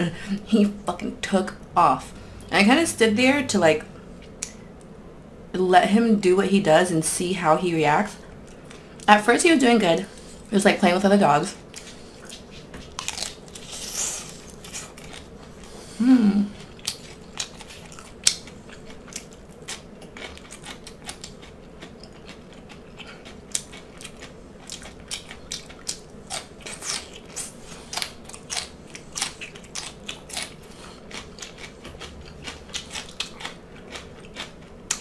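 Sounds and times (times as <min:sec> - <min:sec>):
crisp chewing crunches: 0:11.7 - 0:15.7, 0:16.6 - 0:35.0.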